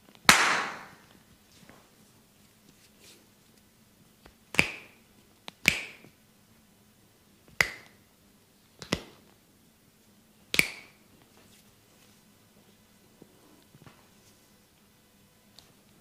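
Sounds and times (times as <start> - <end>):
hands snapping: 4.2 - 6.2, 7.5 - 8.0, 8.8 - 9.2, 10.5 - 11.0.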